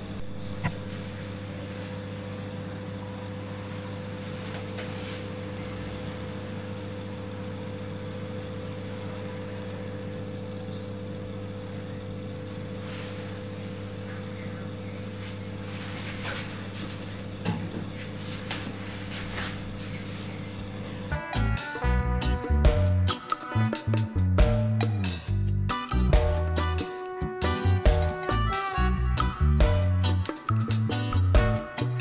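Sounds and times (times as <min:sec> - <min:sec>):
low machine hum: 0:00.0 - 0:32.0
music: 0:21.1 - 0:32.0.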